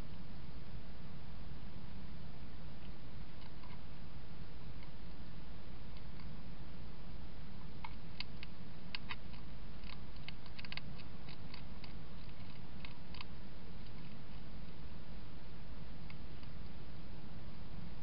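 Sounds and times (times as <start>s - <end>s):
hedgehog eating clicks: 7.8s - 14.5s.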